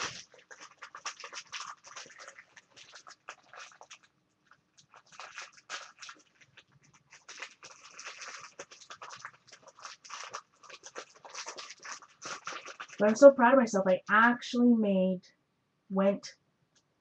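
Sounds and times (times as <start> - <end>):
crinkling and rustling: 0.0 - 14.4.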